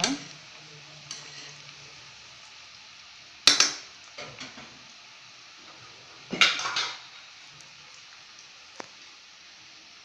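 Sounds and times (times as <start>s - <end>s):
food deep-frying in hot oil: 0.0s - 10.0s
spoon clattering against pan: 6.4s - 7.0s.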